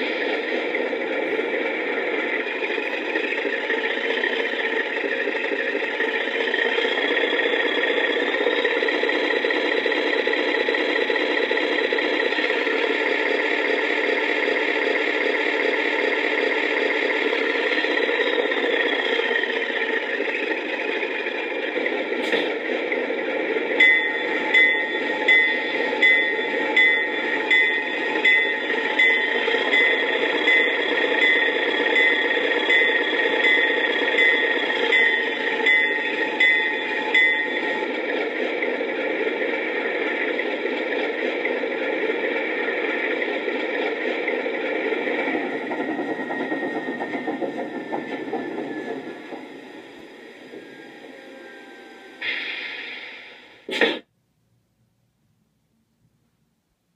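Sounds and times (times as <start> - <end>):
diesel locomotive engine running: 0.0 - 56.5
locomotive bell ringing: 23.6 - 38.3.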